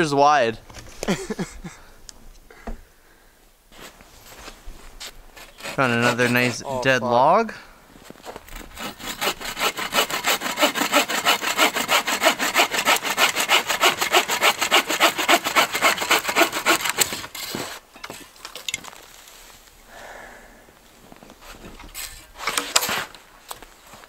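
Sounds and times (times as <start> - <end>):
bow saw cutting wood: 5.4 - 6.8, 8.5 - 17.8, 21.4 - 23.2.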